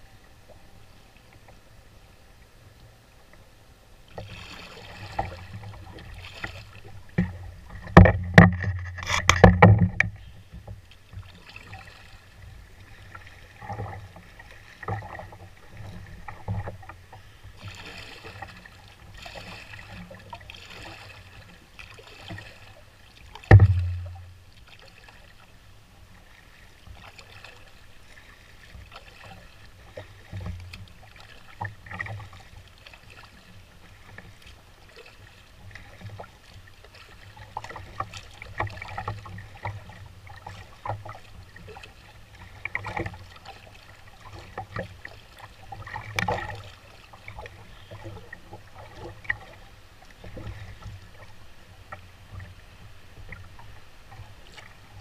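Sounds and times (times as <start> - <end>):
paddle strokes splashing: 4.1 - 55.0
knocks against canoe hull: 7.1 - 10.7, 23.4 - 24.3
loud low thump: 23.5 - 24.2.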